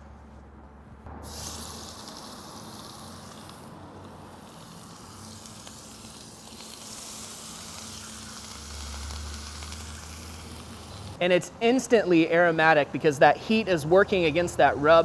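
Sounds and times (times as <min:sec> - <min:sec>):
meat sizzling in a skillet: 0:01.2 - 0:11.1.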